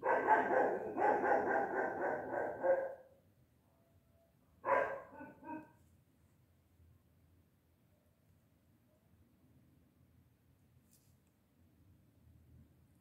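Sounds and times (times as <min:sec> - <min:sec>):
dog yipping: 0:00.0 - 0:03.0, 0:04.6 - 0:05.8
dog barking: 0:00.0 - 0:03.1, 0:04.6 - 0:05.8.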